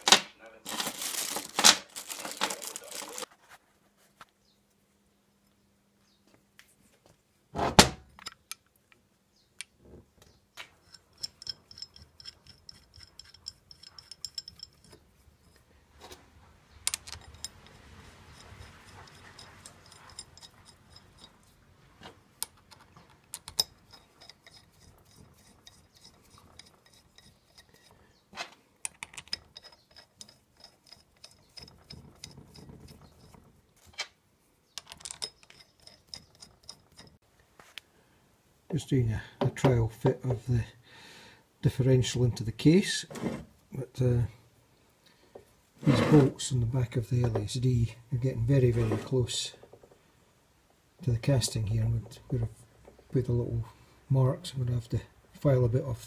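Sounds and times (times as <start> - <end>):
metal parts clinking: 10.8 - 15.6, 16.8 - 21.6, 22.4 - 28.0, 28.8 - 34.0, 34.8 - 37.2.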